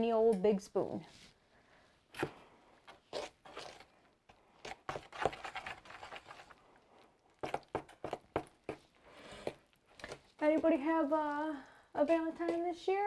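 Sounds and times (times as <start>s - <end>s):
spoon scraping plastic bowl: 2.9s - 3.9s, 4.6s - 6.6s.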